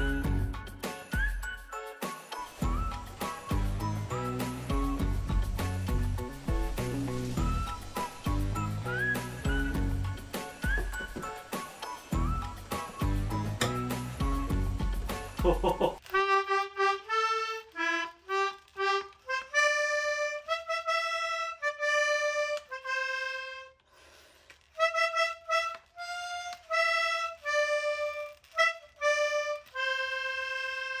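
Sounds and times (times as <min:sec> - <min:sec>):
slow single-line melody: 0:02.4 - 0:15.1.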